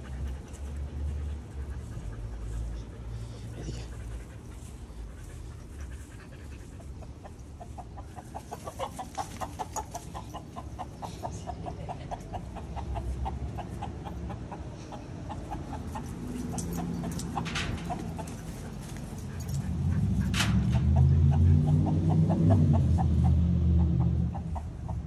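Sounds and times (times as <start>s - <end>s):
husky panting: 0.0s - 25.0s
chicken clucking: 6.4s - 18.8s, 19.9s - 25.0s.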